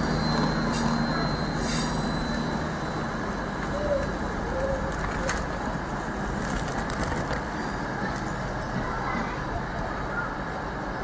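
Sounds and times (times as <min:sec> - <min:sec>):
train rumbling: 0:00.0 - 0:11.0
pigeon cooing: 0:03.7 - 0:05.5.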